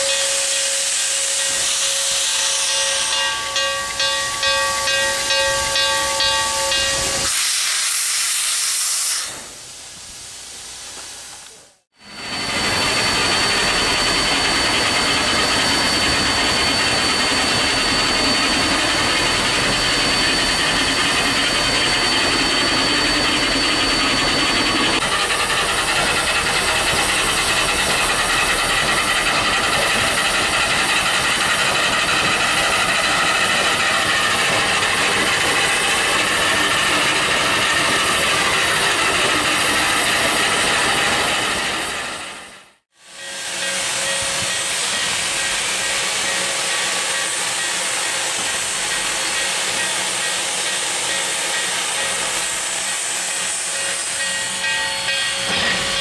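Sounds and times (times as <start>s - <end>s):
steam whistle blast: 0.0s - 3.4s
steam venting hiss: 6.9s - 13.8s.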